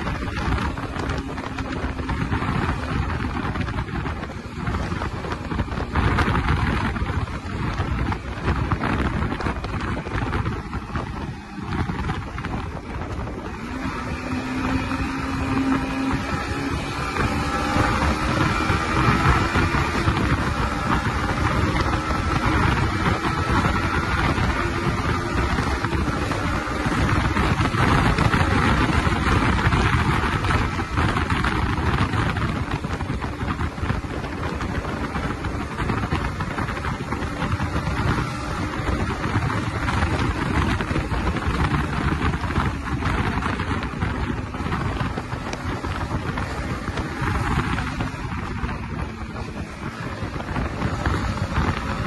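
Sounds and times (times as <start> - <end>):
motorcycle engine running: 0.0 - 52.0
wind rushing over microphone: 0.0 - 52.0.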